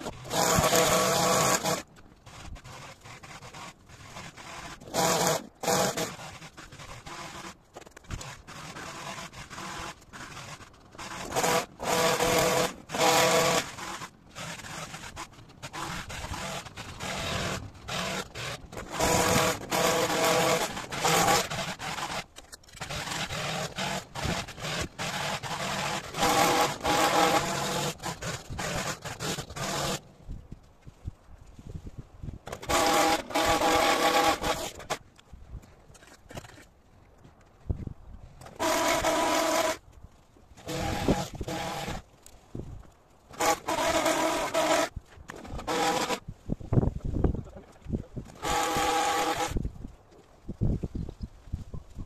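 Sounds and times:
hedge trimmer cutting: 0.0s - 30.1s, 32.4s - 35.0s, 38.4s - 39.8s, 40.6s - 42.7s, 43.3s - 46.3s, 47.8s - 49.8s.

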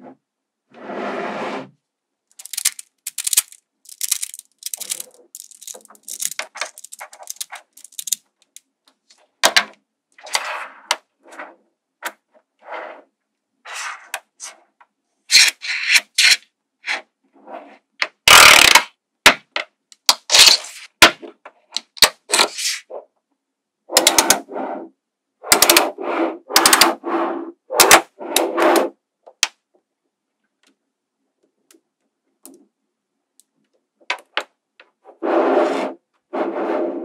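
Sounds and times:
magnetic balls clattering: 2.3s - 8.6s
magnetic balls clicking together: 2.3s - 8.6s, 18.3s - 18.9s, 25.5s - 25.8s.

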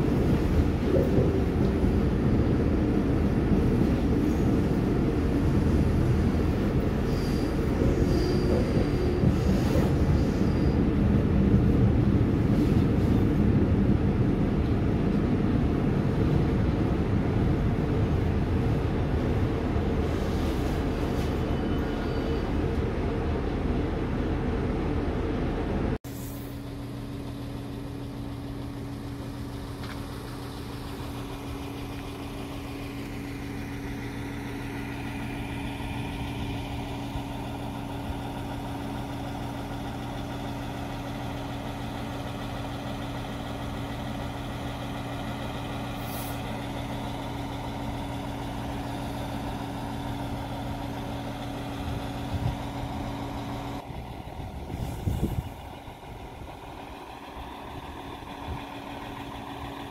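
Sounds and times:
diesel engine idling hum: 0.0s - 59.9s
low rumble: 51.7s - 59.9s.

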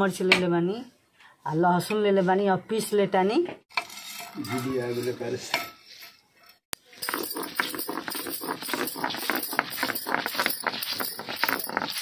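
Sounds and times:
stone roller grinding spices: 6.8s - 12.0s.

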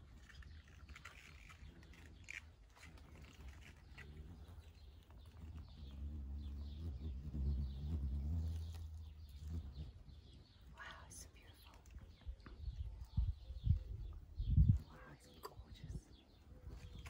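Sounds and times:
moth wings humming: 3.4s - 10.7s
faint bird chirps: 4.0s - 17.0s.

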